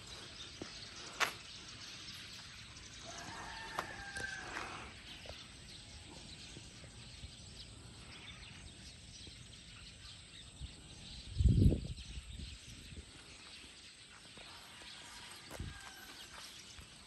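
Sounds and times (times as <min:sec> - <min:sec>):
wind buffeting microphone: 0:10.4 - 0:13.6.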